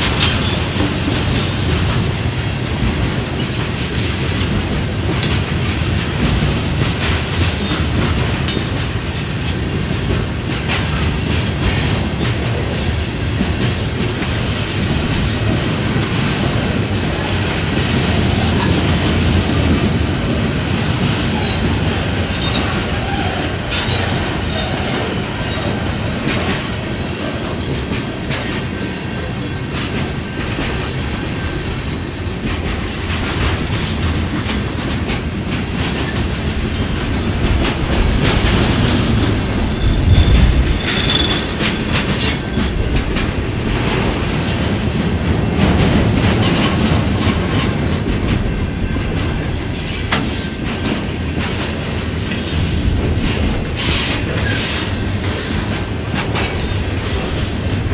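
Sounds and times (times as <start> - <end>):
steel wheels rumbling on rail: 0.0 - 57.9
wheels clicking over rail joints: 0.0 - 57.9
wheel squeal: 39.8 - 41.6.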